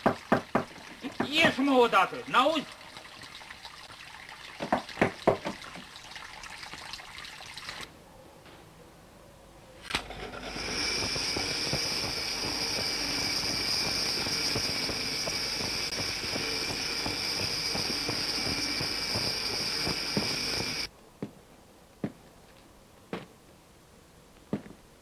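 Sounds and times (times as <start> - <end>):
train starting click: 9.8 - 20.9
toy train motor whine: 9.9 - 20.9.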